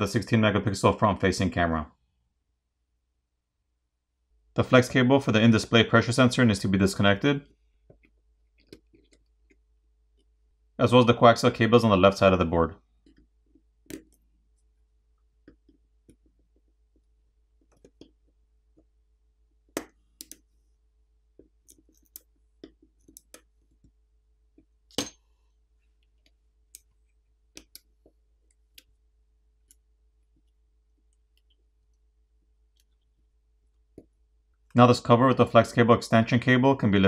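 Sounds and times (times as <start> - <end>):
tweezers clicking on circuit board: 19.7 - 20.5, 21.6 - 23.5, 27.5 - 29.0.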